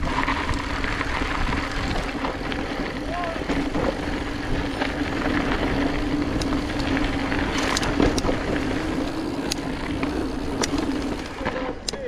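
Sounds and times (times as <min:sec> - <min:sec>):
bike clicks and rattles: 0:00.0 - 0:12.0
bike tyres rushing on trail: 0:00.0 - 0:12.0.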